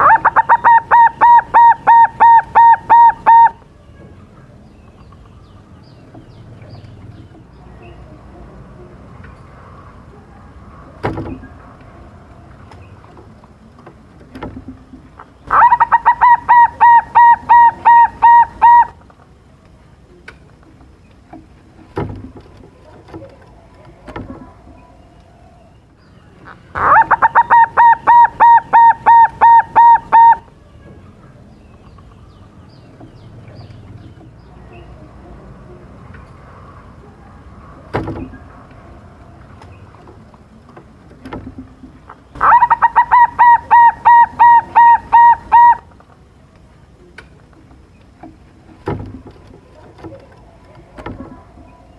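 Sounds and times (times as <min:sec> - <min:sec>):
dove cooing song: 0:00.0 - 0:03.7, 0:14.3 - 0:19.0, 0:26.4 - 0:30.6, 0:41.2 - 0:46.0.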